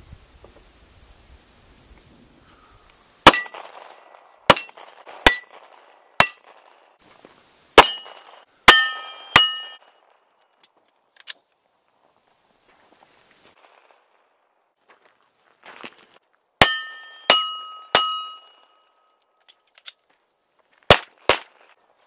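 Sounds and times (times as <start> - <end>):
steel targets ringing: 3.2 - 6.9, 7.8 - 10.0, 16.6 - 19.2
pistol shots: 20.9 - 21.8.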